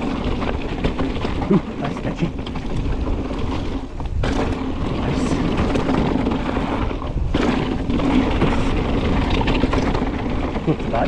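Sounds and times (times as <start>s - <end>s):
bike rattling: 0.0s - 11.0s
tyres rumbling on gravel trail: 0.0s - 11.0s.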